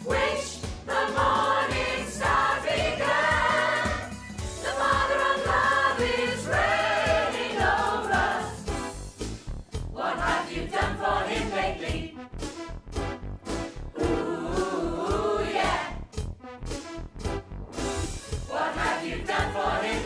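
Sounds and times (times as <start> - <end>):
choir singing gospel song: 0.0 - 8.8, 9.9 - 12.2, 14.0 - 16.0, 18.4 - 20.0
backing track with steady beat: 0.0 - 20.0.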